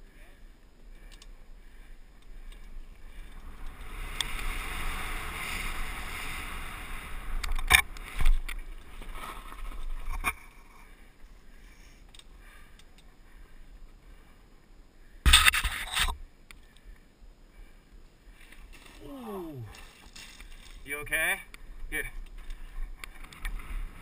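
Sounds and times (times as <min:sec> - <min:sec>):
bike tyres on dirt trail: 0:00.0 - 0:24.0
sharp knocks from bike: 0:15.2 - 0:16.1.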